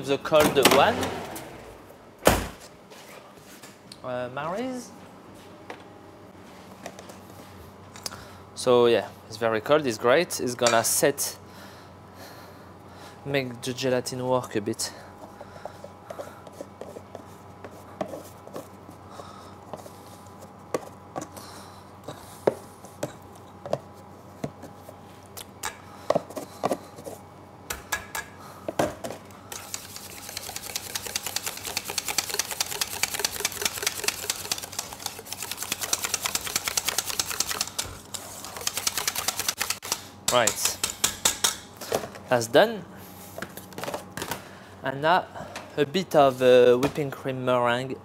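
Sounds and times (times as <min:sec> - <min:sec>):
whisk beating in metal bowl: 0:29.6 - 0:39.9.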